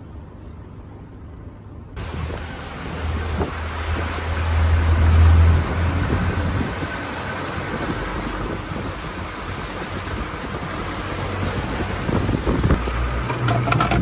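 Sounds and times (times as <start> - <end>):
outboard engine hum: 0.0 - 14.0
rushing water: 1.9 - 14.0
wind noise: 2.0 - 14.0.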